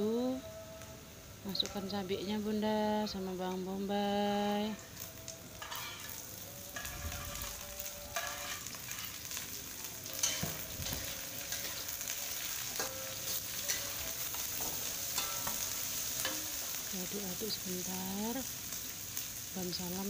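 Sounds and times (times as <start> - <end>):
vegetables sizzling in hot oil: 0.0 - 20.0
metal spatula scraping wok: 5.6 - 17.6.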